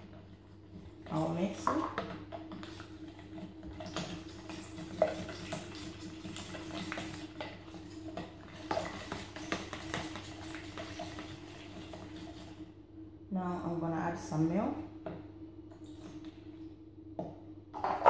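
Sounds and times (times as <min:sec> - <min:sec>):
spoon stirring in plastic jug: 0:00.1 - 0:12.6.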